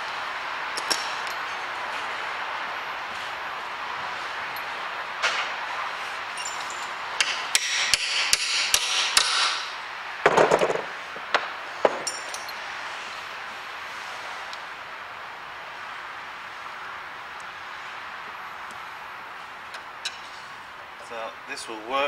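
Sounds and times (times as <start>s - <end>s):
metal clatter: 10.2s - 12.6s.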